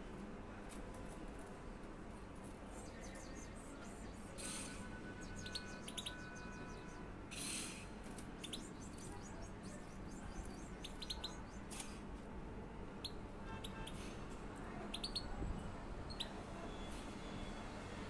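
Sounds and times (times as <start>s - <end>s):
finches chirping: 5.2s - 7.0s, 8.4s - 11.8s, 14.9s - 15.3s.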